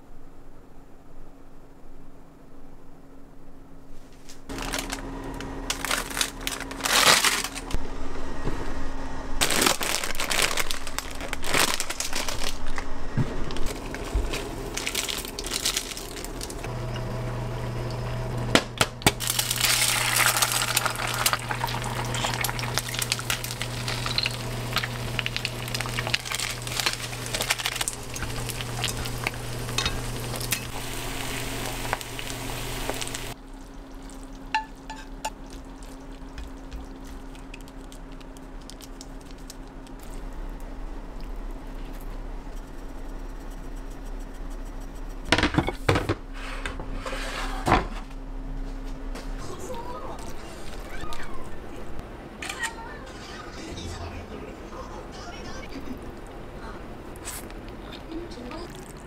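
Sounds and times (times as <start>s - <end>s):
steady low hum: 0.0s - 52.4s, 53.0s - 58.8s
eggs sizzling in oil: 19.2s - 39.2s.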